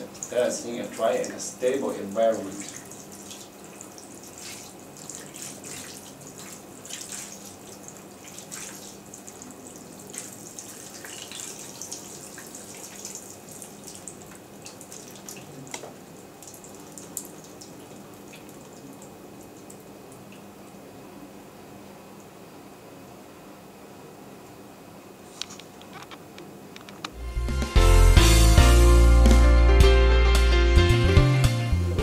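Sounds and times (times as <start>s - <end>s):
water dripping: 0.0s - 20.8s.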